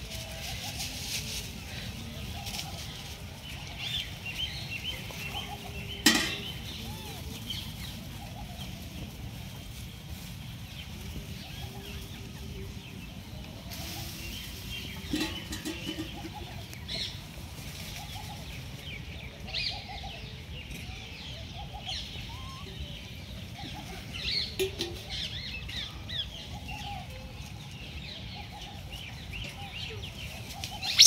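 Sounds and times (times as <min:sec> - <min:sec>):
birds chirping: 0:01.8 - 0:31.0
low bird calls: 0:29.4 - 0:31.0.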